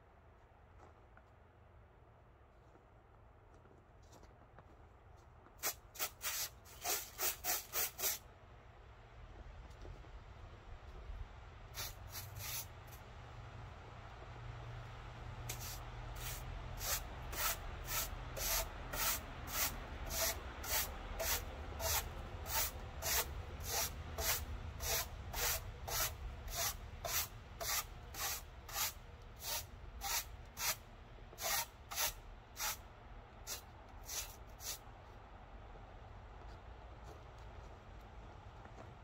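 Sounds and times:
broom sweeping snow: 11.8s - 12.7s, 15.5s - 30.8s, 31.4s - 32.8s, 33.5s - 34.8s.

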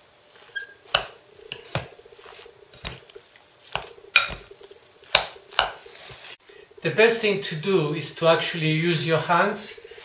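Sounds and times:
fork squelching meat mixture: 0.2s - 6.4s.

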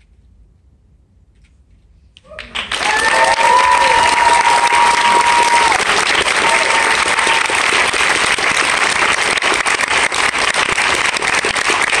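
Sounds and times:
crowd whistle: 2.3s - 5.8s
audience applauding: 2.3s - 12.0s.

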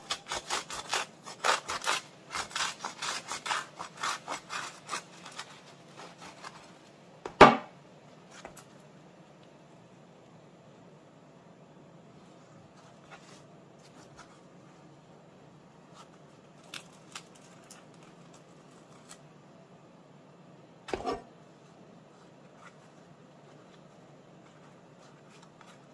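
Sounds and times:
bread rolls rustling and clicking: 0.0s - 7.0s, 15.9s - 19.3s, 21.7s - 25.9s
faint room hum: 0.0s - 25.9s.

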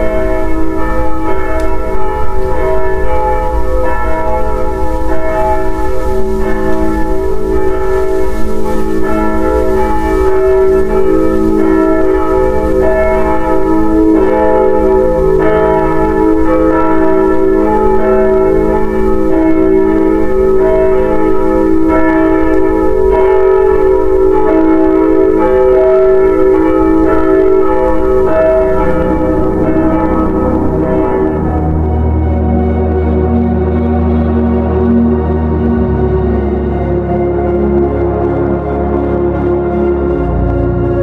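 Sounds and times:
low rumble: 0.0s - 21.7s, 27.9s - 36.6s
bells ringing in a peal: 0.0s - 41.0s.

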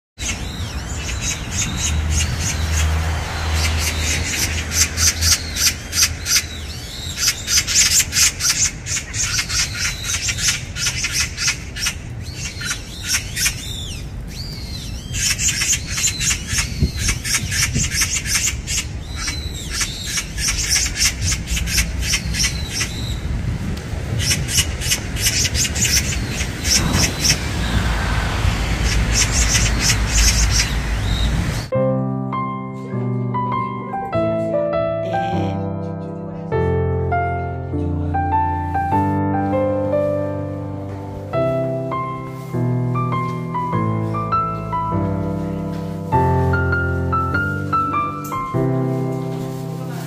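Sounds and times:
magpies chattering: 0.2s - 23.3s, 24.1s - 31.7s.

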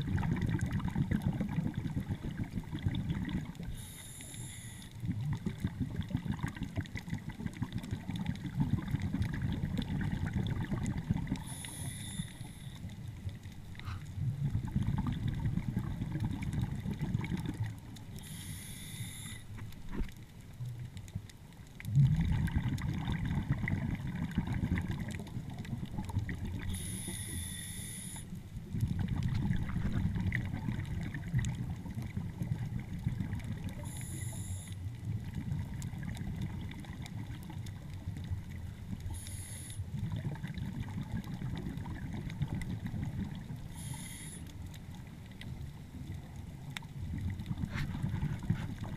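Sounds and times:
bubbling exhales: 0.0s - 12.5s, 21.9s - 28.2s, 47.2s - 48.9s
diver hissing inhales: 3.7s - 5.0s, 11.4s - 12.8s, 13.8s - 14.1s, 18.2s - 19.6s, 26.7s - 28.3s, 33.8s - 34.8s, 39.1s - 39.9s, 43.7s - 44.6s.

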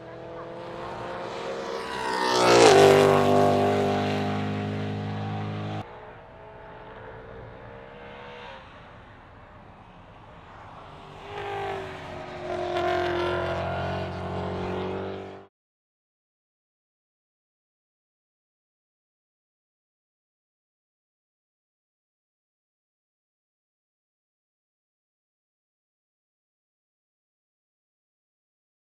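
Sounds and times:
race car engine passing: 0.0s - 15.5s.

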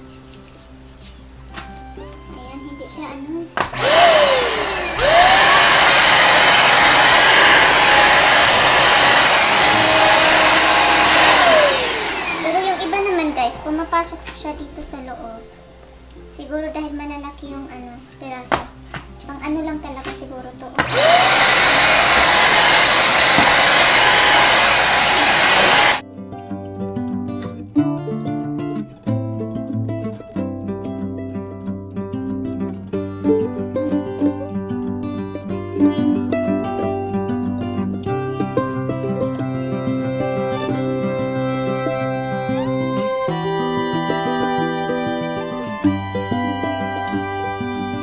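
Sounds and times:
guitar music: 0.0s - 21.8s, 26.0s - 48.0s
vacuum cleaner motor whining: 3.6s - 14.4s, 20.8s - 26.0s, 41.6s - 48.0s.

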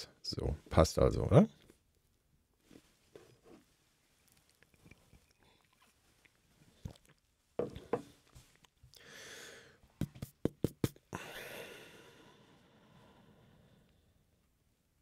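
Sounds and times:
breathing: 8.9s - 9.9s, 11.1s - 14.4s.

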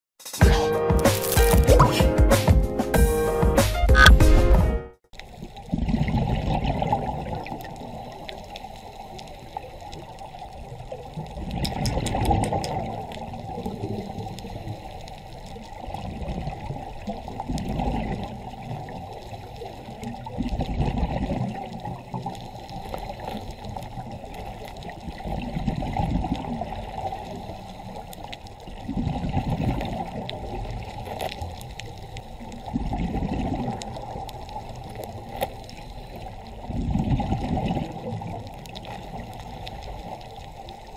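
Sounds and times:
bubbling gurgling water: 5.2s - 40.9s
muffled underwater noise: 5.2s - 40.9s.

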